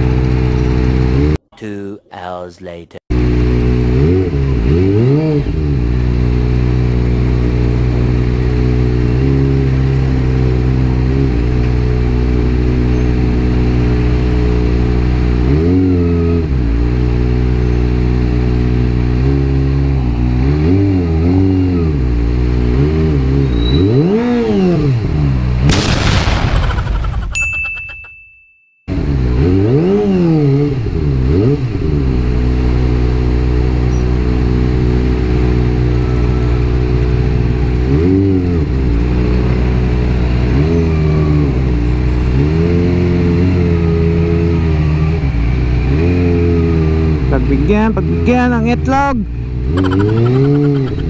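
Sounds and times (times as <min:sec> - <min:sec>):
motorcycle engine at low revs: 0:00.0 - 0:01.4, 0:03.1 - 0:27.0, 0:28.9 - 0:51.0
throttle blips: 0:27.2 - 0:28.5, 0:49.7 - 0:51.0.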